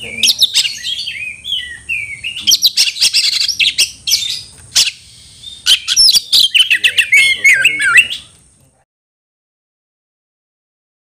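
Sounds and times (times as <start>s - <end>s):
bird singing: 0.0s - 8.4s
steady high hiss: 0.0s - 8.7s.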